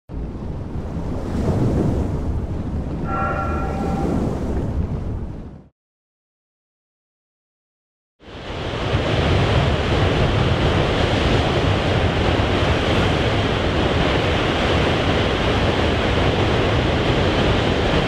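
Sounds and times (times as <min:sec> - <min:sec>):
wind: 0:00.1 - 0:05.7, 0:08.2 - 0:18.0
heavy ocean surf: 0:00.2 - 0:05.6, 0:08.2 - 0:18.0.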